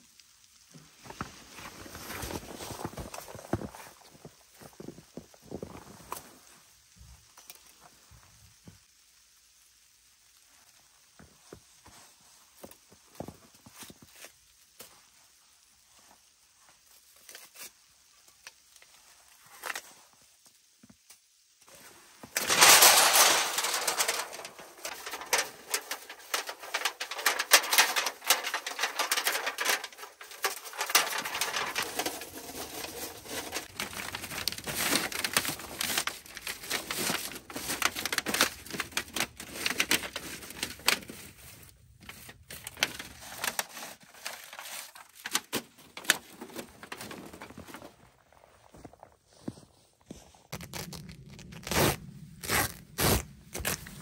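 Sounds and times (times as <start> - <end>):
crunching in snow: 0.8 - 6.9, 21.7 - 45.3, 46.1 - 54.0.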